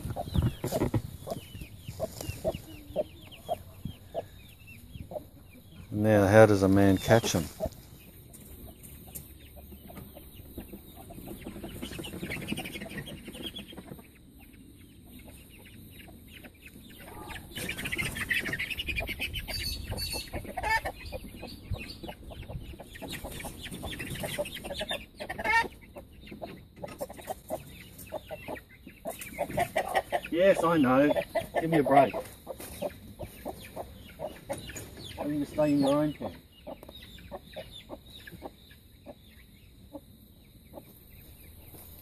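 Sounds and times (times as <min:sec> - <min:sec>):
scuffling in mulch: 0:00.0 - 0:03.1
chickens clucking: 0:00.0 - 0:42.0.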